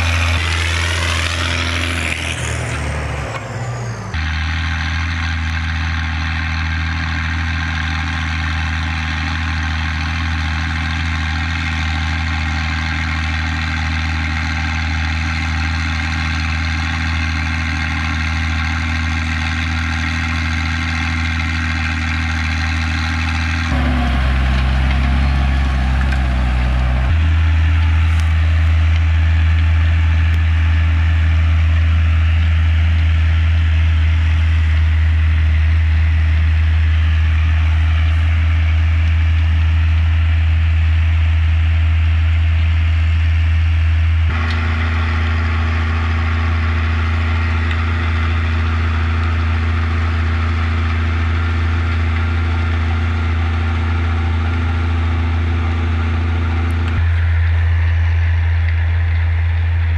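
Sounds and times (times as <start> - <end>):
tractor engine running under load: 0.0 - 59.9.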